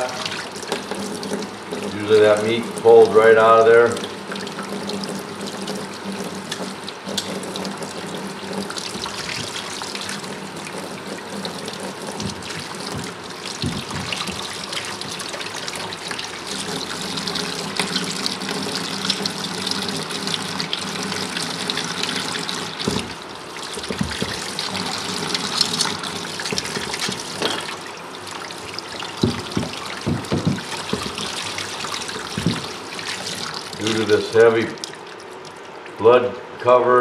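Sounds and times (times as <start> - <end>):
tap water running into sink: 0.0 - 36.0
dull thumps: 12.2 - 15.2, 23.8 - 24.8, 29.1 - 32.8.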